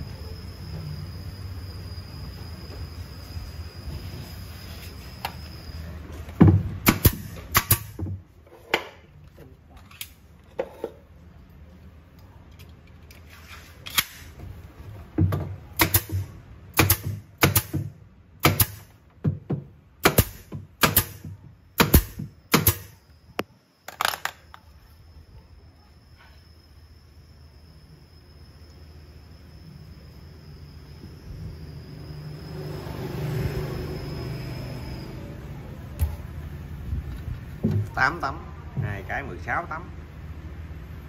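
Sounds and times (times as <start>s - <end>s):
nail gun firing into wood: 6.8s - 8.0s, 15.8s - 18.9s, 20.0s - 23.0s.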